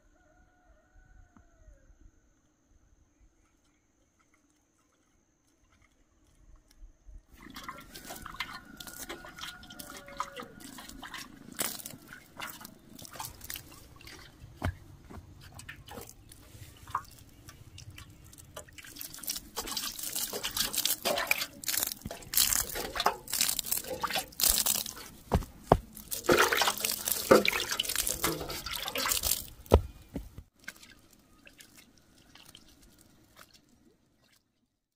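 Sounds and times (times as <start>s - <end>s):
water pouring onto soil: 7.3s - 34.5s.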